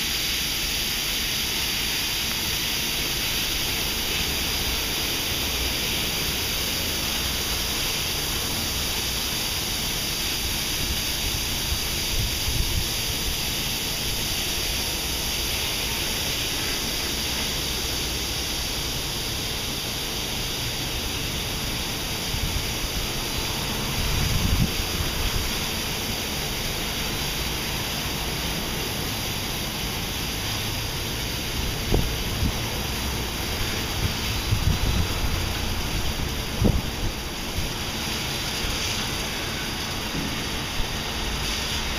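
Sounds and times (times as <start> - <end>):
car wash rushing hiss: 0.0 - 41.9
low rumbling surges: 3.2 - 41.9.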